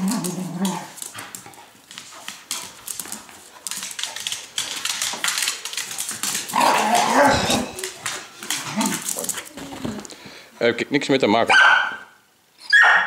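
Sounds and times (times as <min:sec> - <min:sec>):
dog growling: 0:00.0 - 0:01.0, 0:06.5 - 0:09.5
dogs scuffling: 0:00.0 - 0:10.4.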